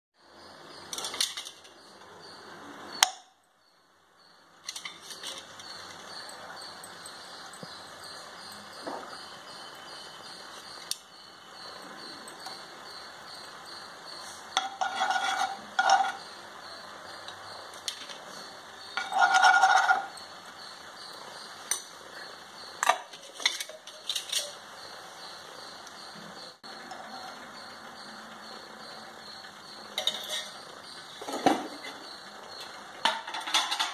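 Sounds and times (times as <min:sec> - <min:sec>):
spoon clinking and scraping pan: 0:14.5 - 0:16.3, 0:18.9 - 0:20.3, 0:22.8 - 0:24.6, 0:30.0 - 0:32.0, 0:33.0 - 0:33.9.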